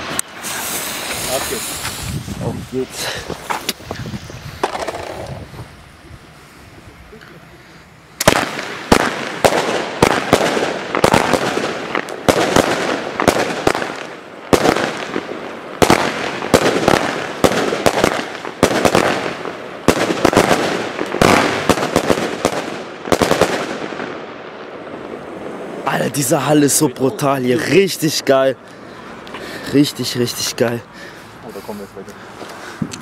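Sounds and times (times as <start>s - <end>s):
fireworks shots and bangs: 0.0s - 2.2s, 3.3s - 5.5s, 8.2s - 26.8s
firework crackling: 0.0s - 33.0s.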